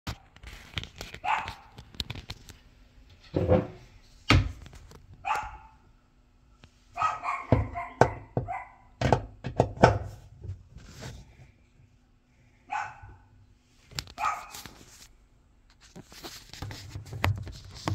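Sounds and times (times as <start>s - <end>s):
dog barking: 1.2s - 1.7s, 5.2s - 5.8s, 7.0s - 8.9s, 12.7s - 13.3s, 14.2s - 14.6s.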